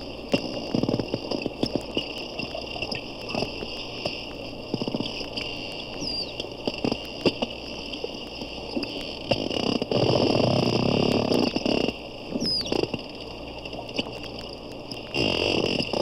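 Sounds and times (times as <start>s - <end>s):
dolphin echolocation clicks: 0.2s - 16.0s.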